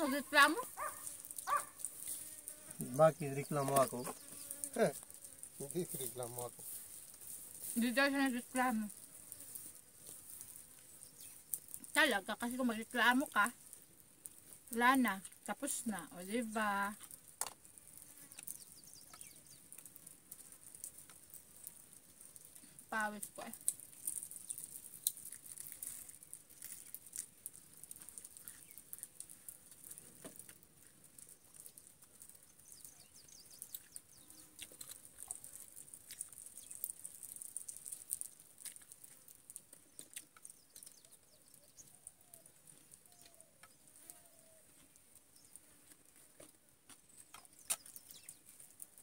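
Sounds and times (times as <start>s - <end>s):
insects droning: 0.0s - 6.7s
small clicks and taps: 46.4s - 48.4s.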